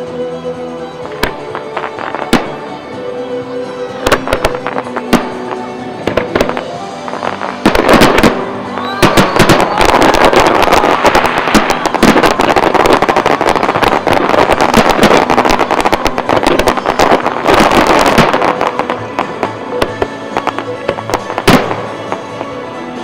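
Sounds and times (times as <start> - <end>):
fireworks crackle: 1.0 - 23.0
fireworks shells bursting: 4.0 - 22.4.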